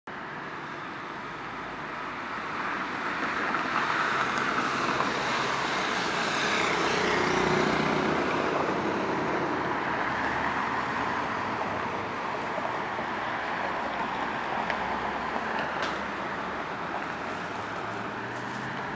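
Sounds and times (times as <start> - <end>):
cars driving past: 2.4 - 18.9.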